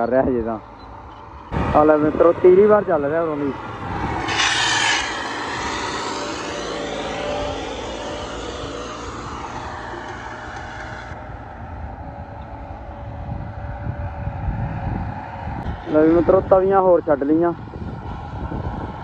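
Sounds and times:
diesel tractor engine under load: 0.6 - 14.5.

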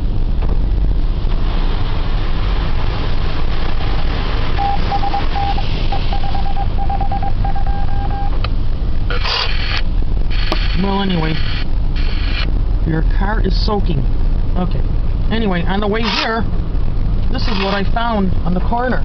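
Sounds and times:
low rumble: 0.0 - 19.0
car wash water spray hissing: 0.1 - 6.8, 9.0 - 12.6
short electronic beeps: 4.6 - 8.4.

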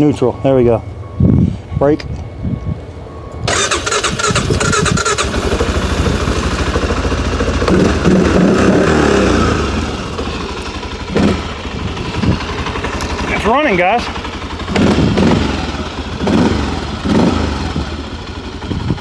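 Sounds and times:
electric starter cranking: 3.4 - 5.7
engine running and revving: 3.4 - 19.0.

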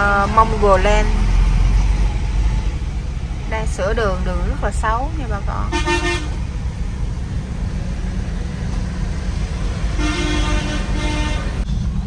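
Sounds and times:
engine and road rumble: 0.0 - 12.0
vehicle horn honks: 5.7 - 6.4, 10.0 - 11.6.

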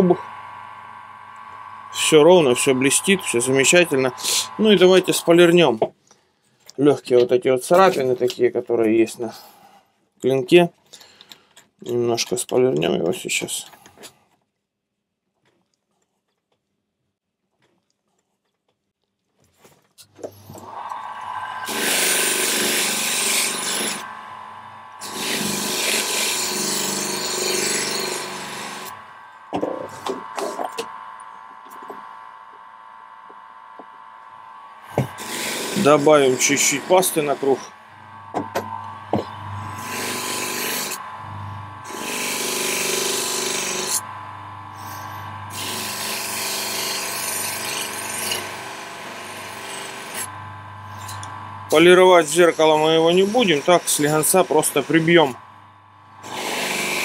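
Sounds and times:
polishing motor humming: 0.0 - 5.6, 20.4 - 46.9, 49.7 - 57.0
blade scraping polishing wheel: 1.9 - 5.5, 20.4 - 29.0, 49.8 - 55.4.

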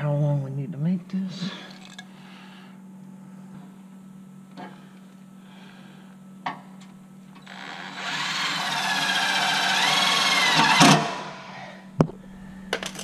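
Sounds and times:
cordless drill motor whine: 7.3 - 13.0.

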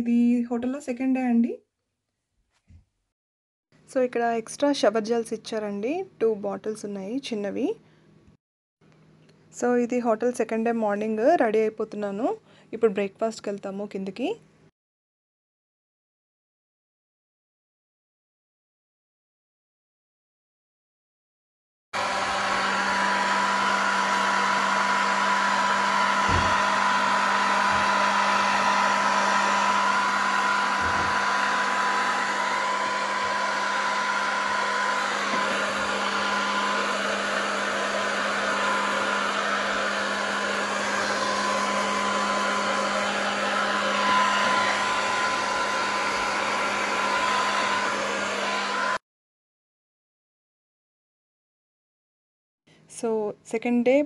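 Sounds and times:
hair dryer blowing: 22.0 - 49.0.

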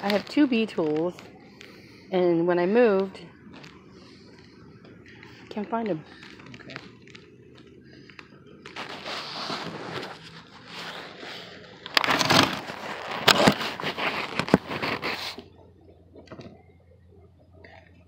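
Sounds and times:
close scraping and crunching: 5.2 - 15.5.

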